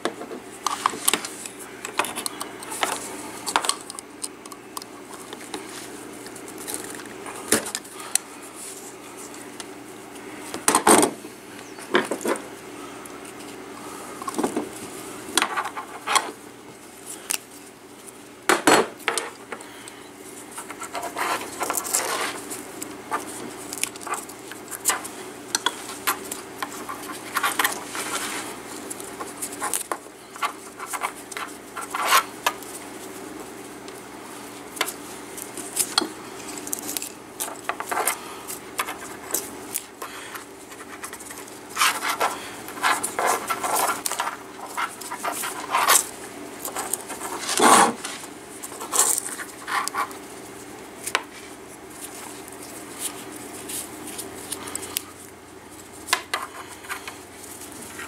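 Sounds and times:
cord rustling and sliding: 20.3s - 33.5s, 34.3s - 55.1s.

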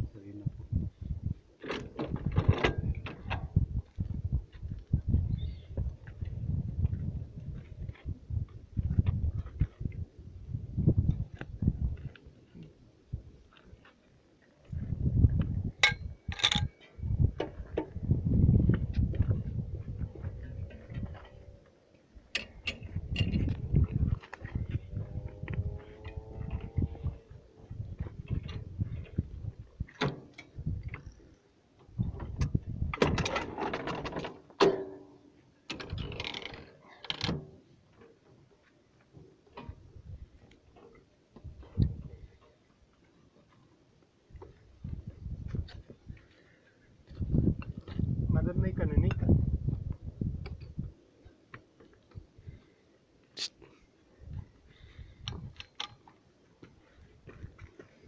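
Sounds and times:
metal gun parts clanking: 15.8s - 17.0s
metal parts clicking and clanking: 15.8s - 17.0s, 22.3s - 23.6s, 35.7s - 37.5s, 55.2s - 56.0s
low rumble: 17.0s - 21.6s, 22.8s - 29.8s.

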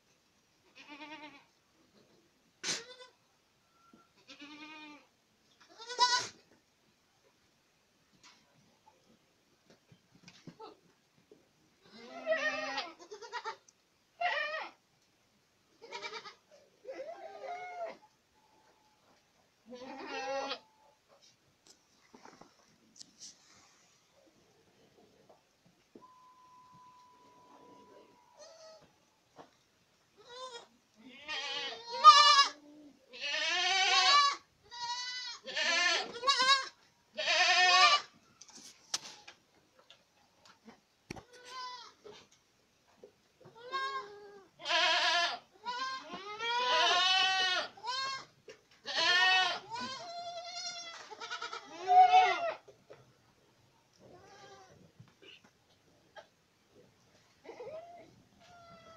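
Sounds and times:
young goats bleating: 0.6s - 1.5s, 2.6s - 3.2s, 4.2s - 6.4s, 11.8s - 14.8s, 15.8s - 18.0s, 19.6s - 20.7s, 27.7s - 28.9s, 30.1s - 38.2s, 41.2s - 42.2s, 43.4s - 52.7s, 54.0s - 55.5s, 57.4s - 58.9s.

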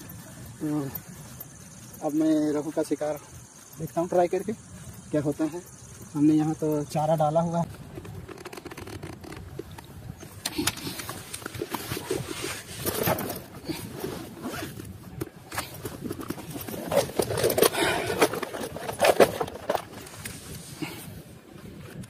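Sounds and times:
backpack zipper being pulled: 8.0s - 9.6s, 10.5s - 15.8s.

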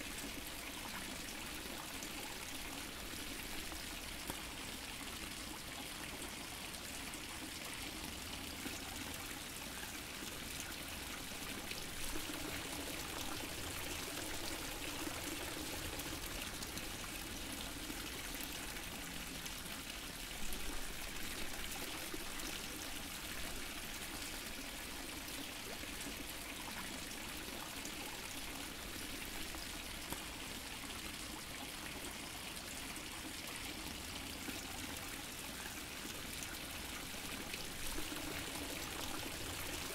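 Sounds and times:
fountain water splashing: 34.0s - 39.9s.

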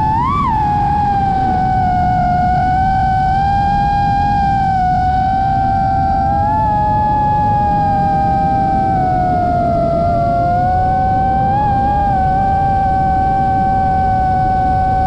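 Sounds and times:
drone motors whining: 0.0s - 15.0s
lower motor tone: 0.0s - 15.0s
wind rumble on microphone: 0.0s - 15.0s.

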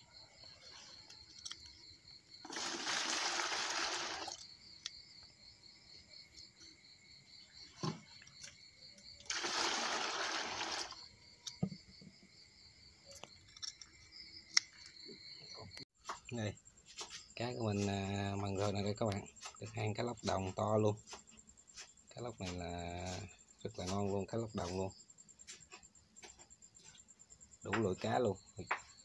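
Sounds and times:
crickets chirping: 0.0s - 29.0s
water running: 2.4s - 4.4s, 9.2s - 11.0s.

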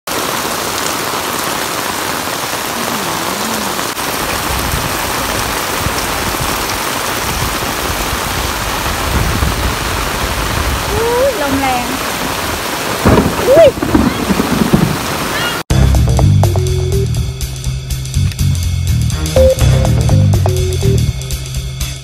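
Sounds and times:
heavy rain on concrete: 0.1s - 15.7s.

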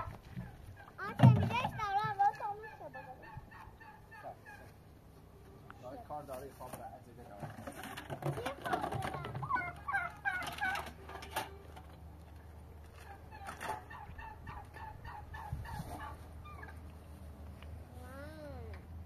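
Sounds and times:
chickens calling: 0.0s - 5.9s, 8.4s - 17.4s.

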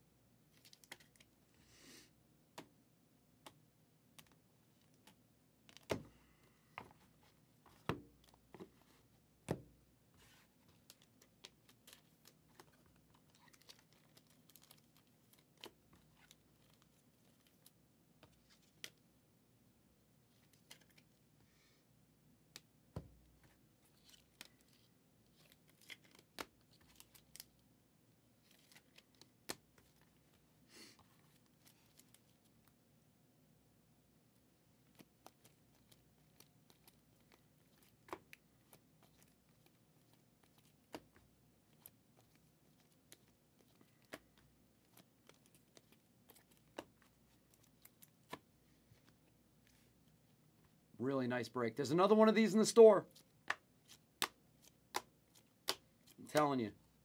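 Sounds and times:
cards clicking and rustling: 0.6s - 1.3s, 10.4s - 19.0s, 20.4s - 21.2s, 23.4s - 27.6s, 28.4s - 30.4s, 34.8s - 49.8s, 53.1s - 56.7s.

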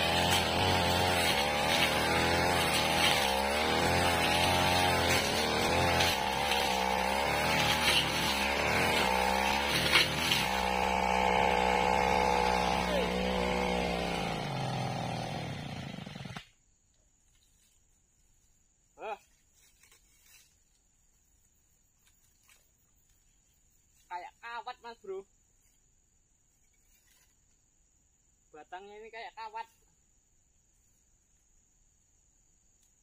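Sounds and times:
blade hitting brush stems: 0.0s - 14.8s
brush cutter engine running: 0.0s - 16.5s.

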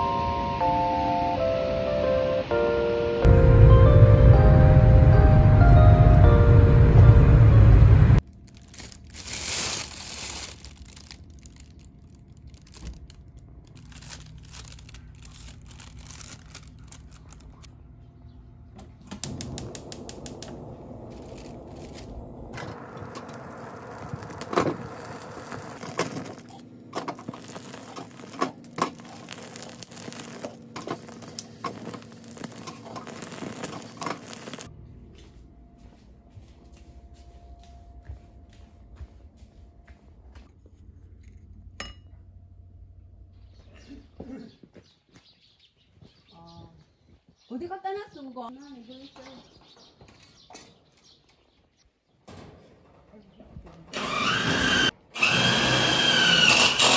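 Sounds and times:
grilled squid tearing: 8.3s - 17.6s, 27.2s - 34.6s
sharp clicks: 19.1s - 23.4s.

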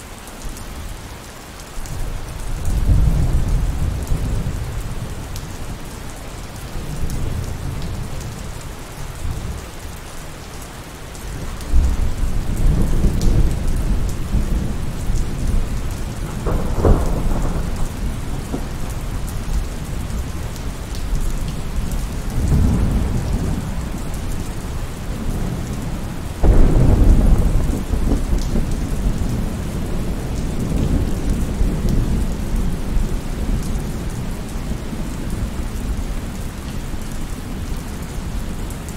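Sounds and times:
heavy rain: 0.0s - 38.9s
thunder rumbling and cracking: 11.4s - 36.5s.

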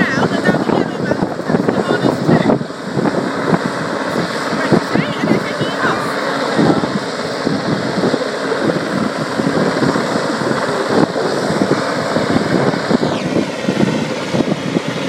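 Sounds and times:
helicopter rotor noise: 0.0s - 15.0s
helicopter turbines whining: 0.0s - 15.0s
wind buffeting microphone: 0.0s - 15.0s.

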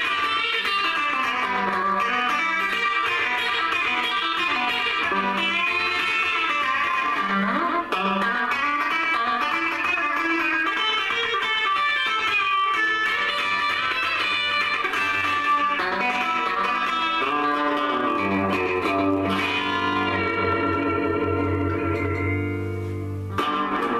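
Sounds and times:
electric guitar rockabilly lead: 0.0s - 23.9s.

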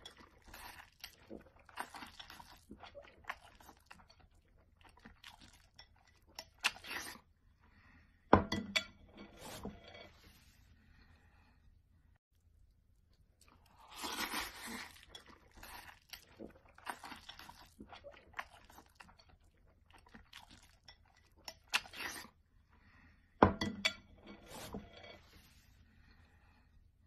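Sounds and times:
noodles slurped and chewed: 0.0s - 7.7s, 12.5s - 22.7s.

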